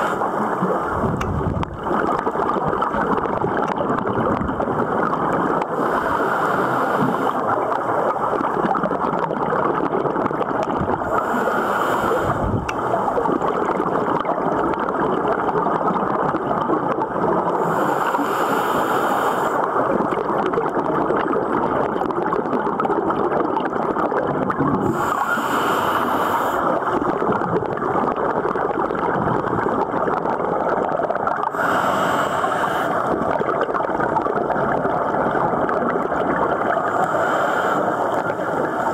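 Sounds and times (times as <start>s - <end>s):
muffled rush of water and bubbles: 0.0s - 38.9s
breath hissing through regulator: 5.7s - 7.5s, 11.0s - 12.9s, 17.5s - 19.8s, 24.8s - 27.1s, 31.5s - 33.2s, 36.8s - 38.9s.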